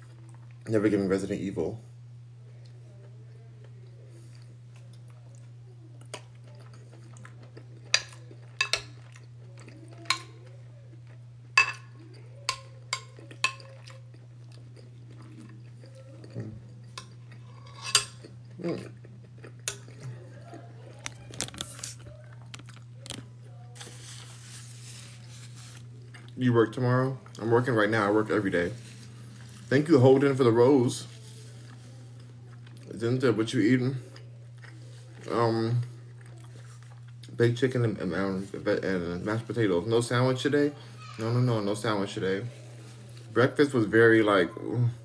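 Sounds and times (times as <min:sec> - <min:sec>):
steady low hum: 0:00.0 - 0:45.0
chewing: 0:02.6 - 0:26.4, 0:31.0 - 0:33.0, 0:33.9 - 0:37.4.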